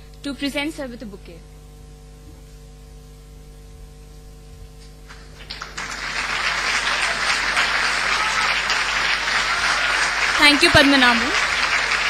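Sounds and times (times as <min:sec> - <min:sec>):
low steady hum: 0:00.0 - 0:12.0
audience applause: 0:05.1 - 0:12.0.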